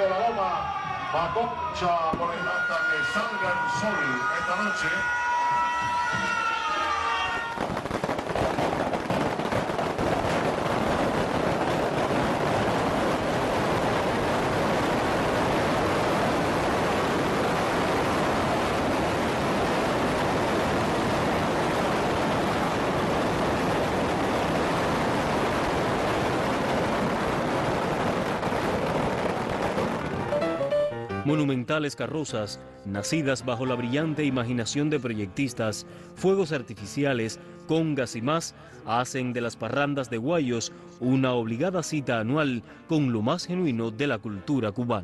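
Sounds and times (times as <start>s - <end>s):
fireworks and firecrackers bangs: 2.1s - 3.3s, 7.4s - 30.5s.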